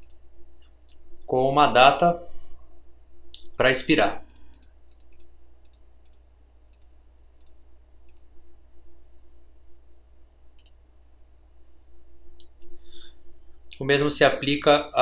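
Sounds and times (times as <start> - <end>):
computer mouse clicking: 0.0 - 0.8, 4.3 - 8.3, 10.6 - 10.8
faint steady hum: 0.0 - 15.0.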